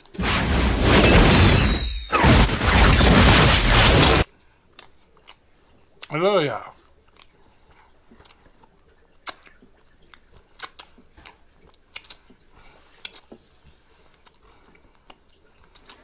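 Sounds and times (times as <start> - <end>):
person licking fingers: 4.7 - 6.1, 6.7 - 16.0.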